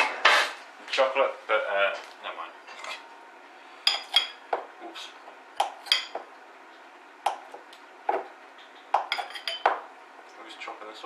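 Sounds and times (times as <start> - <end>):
knife clinking against glass bowl: 5.8 - 6.2, 9.0 - 9.8.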